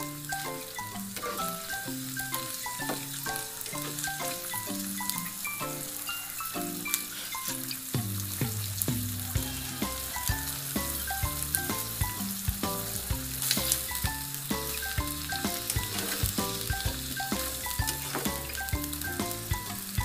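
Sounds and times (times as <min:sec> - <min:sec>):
scallops sizzling in frying pan: 0:00.1 - 0:20.0
background music with bass line: 0:07.8 - 0:20.0
spatula scraping: 0:14.5 - 0:18.6.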